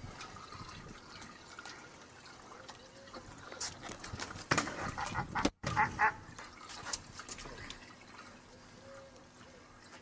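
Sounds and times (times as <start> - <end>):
faint trickling water: 0.0 - 5.2, 6.0 - 10.0.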